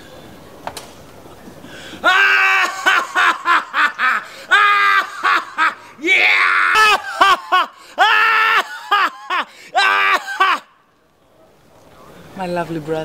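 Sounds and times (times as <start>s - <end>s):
high-pitched laughter: 2.0s - 10.7s.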